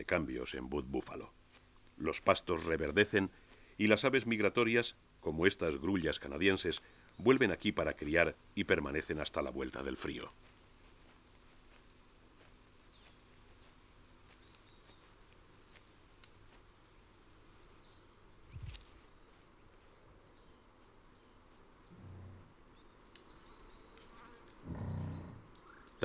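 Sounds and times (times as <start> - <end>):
high insect trill: 0.0 - 26.0
soft low thump: 24.7 - 25.4.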